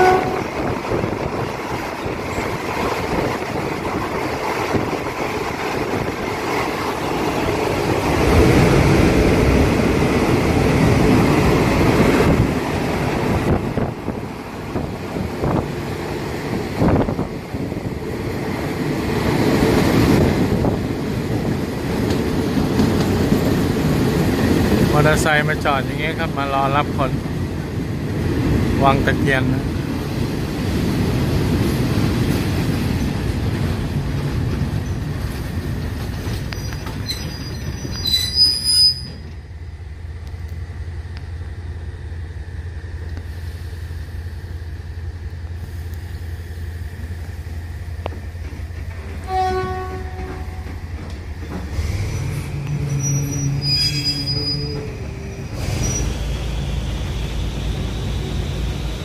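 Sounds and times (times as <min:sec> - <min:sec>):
train horn: 0:00.0 - 0:00.7, 0:49.2 - 0:50.8
train rumbling: 0:00.0 - 0:59.0
high-pitched squeal: 0:36.5 - 0:39.3, 0:51.8 - 0:58.6.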